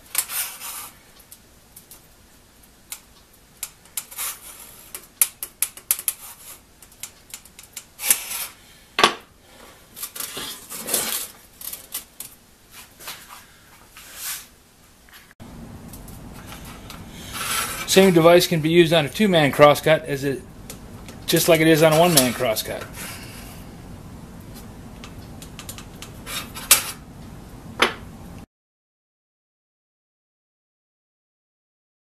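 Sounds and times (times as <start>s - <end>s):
metal scraping: 10.0s - 12.1s, 16.0s - 20.0s, 21.0s - 23.6s, 25.6s - 27.0s.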